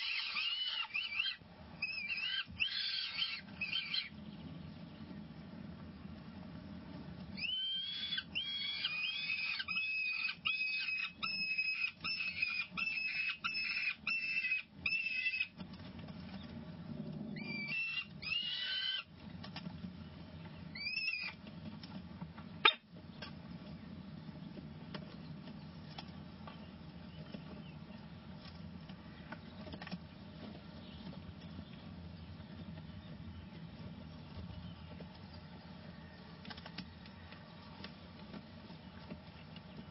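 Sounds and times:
falcon chicks high cries: 0.0s - 4.2s, 7.3s - 15.6s, 17.3s - 19.3s, 20.6s - 21.5s, 22.6s - 22.9s
steady low hum: 0.0s - 39.9s.

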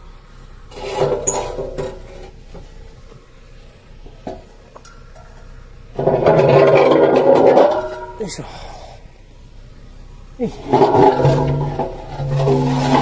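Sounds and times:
steel ramps clattering and scraping: 0.7s - 3.3s, 4.0s - 8.5s, 10.4s - 13.0s.

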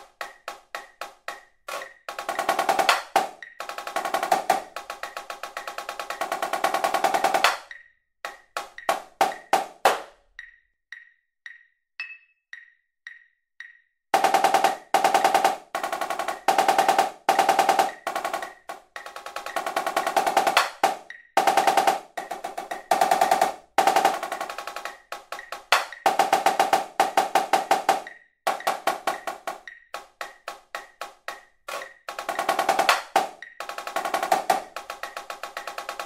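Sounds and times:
marching snare drum rolls: 0.0s - 7.6s, 8.6s - 10.0s, 14.2s - 36.0s
metronome click: 10.2s - 13.9s.

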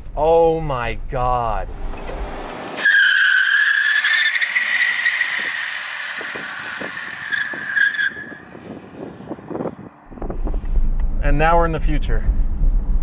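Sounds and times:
tires squealing in a burnout: 2.5s - 9.3s.

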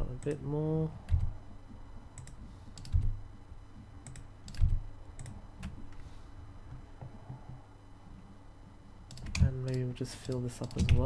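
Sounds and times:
keyboard and mouse clicking: 2.2s - 3.1s, 4.0s - 5.8s, 9.1s - 11.0s.

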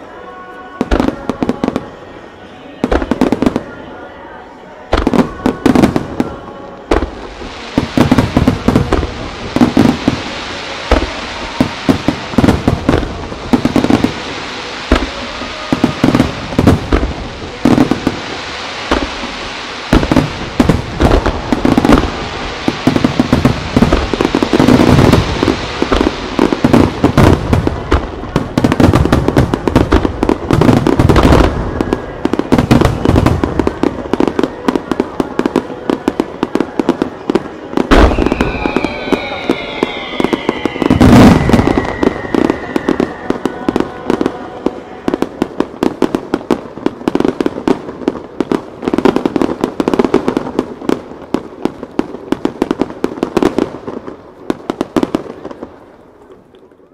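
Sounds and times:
fireworks bursting and crackling: 0.0s - 56.9s
heavy fireworks booms: 0.8s - 2.0s, 2.8s - 3.8s, 4.9s - 56.5s
falling whistles: 37.8s - 45.2s.

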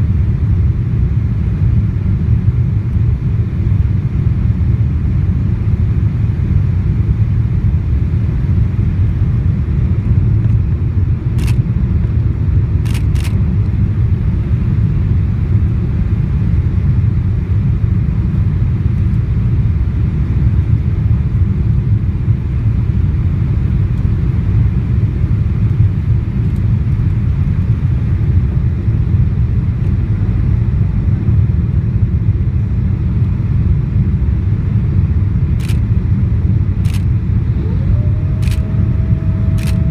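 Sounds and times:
airplane cabin engine rumble: 0.0s - 39.9s
brief clicks: 39.5s - 39.9s.

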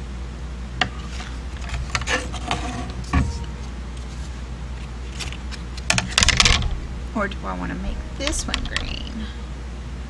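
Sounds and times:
steady low hum: 0.0s - 10.0s
plywood clicks and scrapes: 0.8s - 3.2s.

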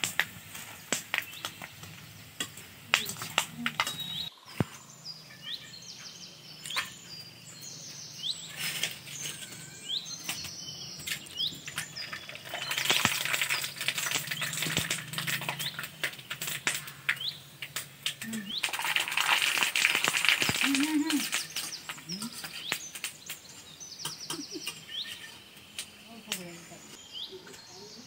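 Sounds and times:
small birds chirping: 0.0s - 28.0s
potatoes sizzling in hot oil: 8.8s - 23.5s.

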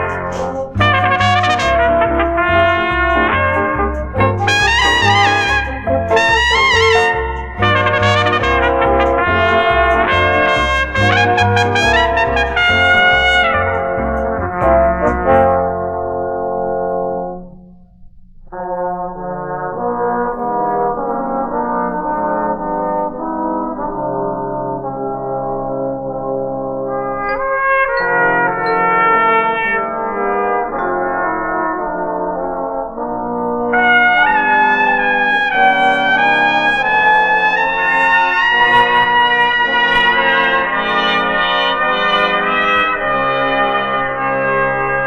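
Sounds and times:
brass ensemble playing gospel: 0.0s - 15.7s, 26.9s - 45.0s.

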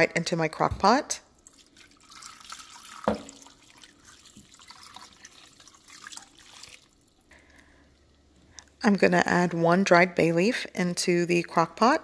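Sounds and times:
liquid pouring with drips: 1.3s - 8.6s.

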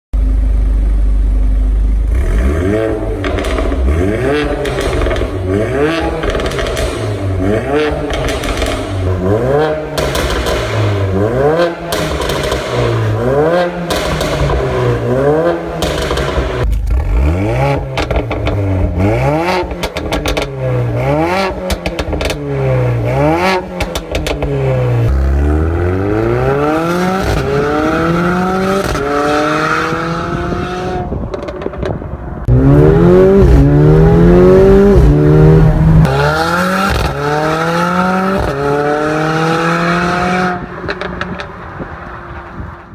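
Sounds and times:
car engine revving: 2.0s - 42.9s
exhaust crackles and pops: 3.2s - 5.4s, 6.0s - 7.2s, 7.9s - 9.1s, 10.0s - 10.8s, 11.9s - 13.0s, 15.7s - 17.1s, 17.8s - 19.0s, 19.6s - 20.6s, 31.1s - 32.2s
car accelerating through gears: 32.4s - 41.6s.

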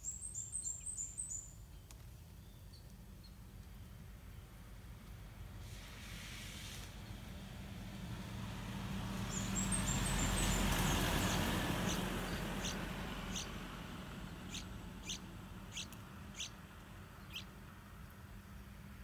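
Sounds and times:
broad rushing noise: 8.4s - 17.6s
bird chick begging calls: 10.4s - 13.6s, 14.3s - 16.6s, 17.2s - 17.6s.

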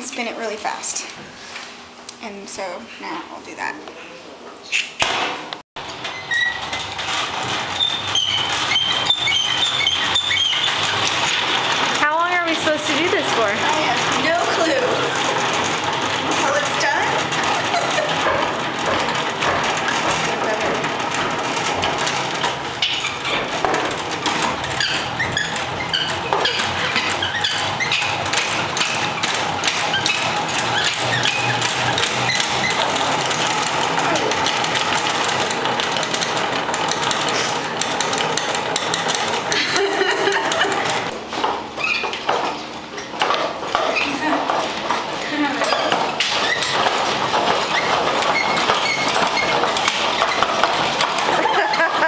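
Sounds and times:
crank gearing clicking and squeaking: 5.8s - 52.0s
honey extractor drum rumbling: 5.8s - 52.0s
short high squeaks: 6.0s - 7.0s, 7.7s - 11.6s, 24.7s - 33.0s.

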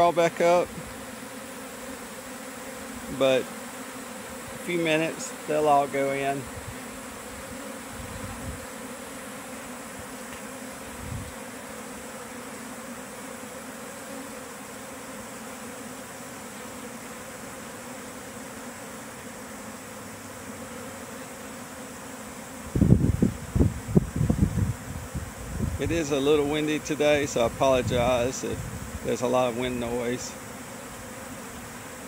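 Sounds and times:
bee swarm buzzing: 0.0s - 32.0s
wind buffeting microphone: 11.0s - 11.4s, 22.7s - 26.1s, 27.1s - 29.1s.

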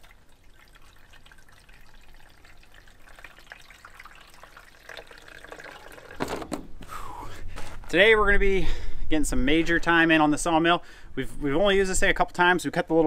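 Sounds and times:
water pouring into tank: 0.0s - 6.5s.

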